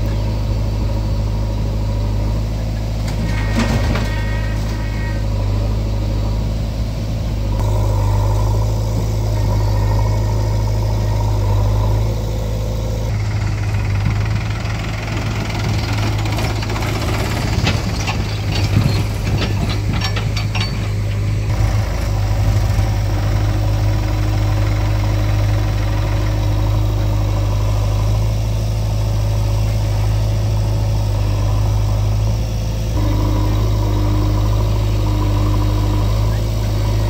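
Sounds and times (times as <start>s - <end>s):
diesel tractor engine running: 0.0s - 37.0s.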